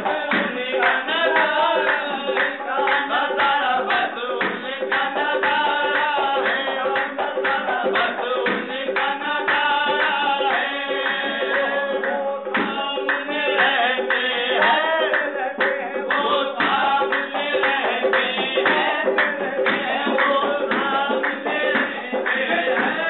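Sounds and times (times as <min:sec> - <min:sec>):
harmonium: 0:00.0 - 0:23.0
lead singer and male chorus singing: 0:00.0 - 0:23.0
rhythmic hand clapping: 0:00.0 - 0:23.0.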